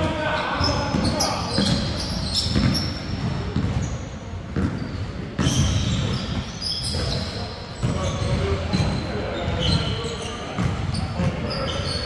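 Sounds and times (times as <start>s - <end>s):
shoes squeaking on floor: 0.0s - 12.0s
basketball bouncing: 0.6s - 7.2s, 7.8s - 9.0s, 10.5s - 11.5s.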